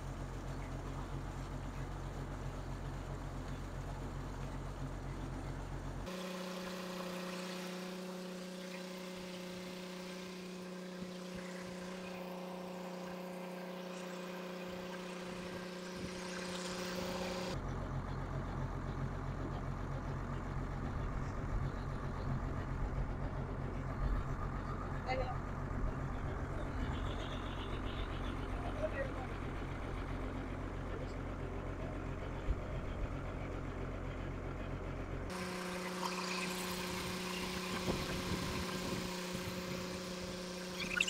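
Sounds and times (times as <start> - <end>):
drilling rig engine running: 0.0 - 41.0
high mechanical hum: 0.0 - 41.0.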